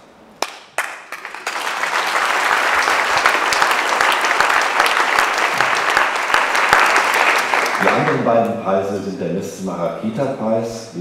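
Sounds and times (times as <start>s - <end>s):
audience applause: 0.4s - 8.3s.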